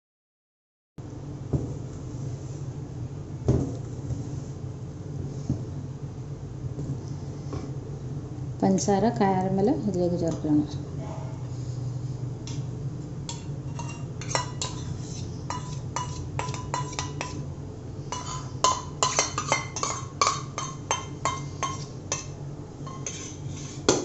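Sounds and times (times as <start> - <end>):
steel spoon scraping a metal pot: 13.7 - 17.4, 22.8 - 23.9.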